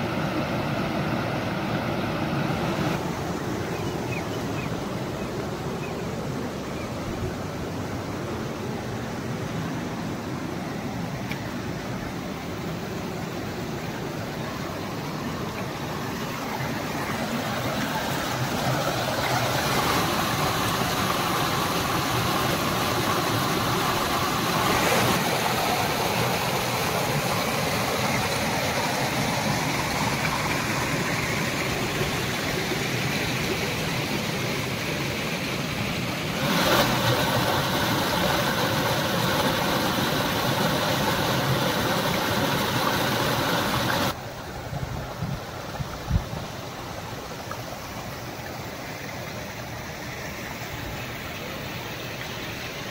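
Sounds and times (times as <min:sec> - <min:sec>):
water rushing over rocks: 0:00.0 - 0:52.9
small waterfall splashing into pool: 0:16.3 - 0:44.2.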